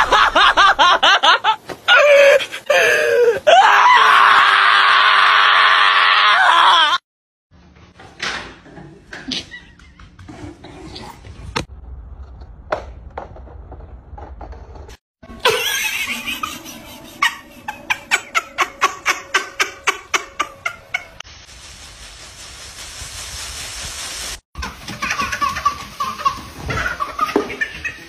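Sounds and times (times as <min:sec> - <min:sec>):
baby laughing: 0:15.4 - 0:21.2, 0:24.6 - 0:28.0
steady hiss: 0:21.3 - 0:28.0.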